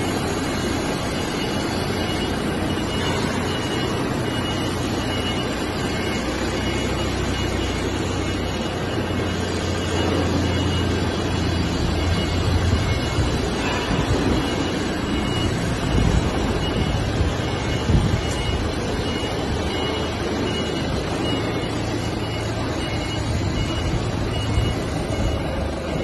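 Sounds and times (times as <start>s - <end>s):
faint high beep: 0.0s - 26.0s
forklift engine running: 0.0s - 26.0s.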